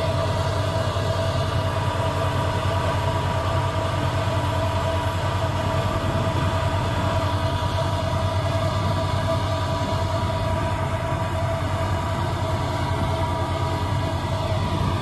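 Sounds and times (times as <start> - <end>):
tractor diesel engine under load: 0.0 - 15.0.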